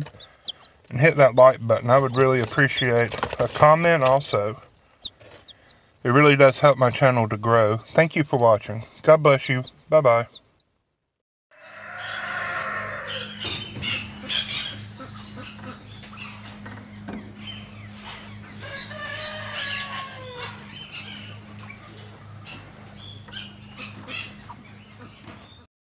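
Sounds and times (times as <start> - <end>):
drawn-out bird call: 0.0 - 3.4, 5.0 - 5.9, 11.9 - 25.7
steady low hum: 0.0 - 10.7, 12.9 - 25.6.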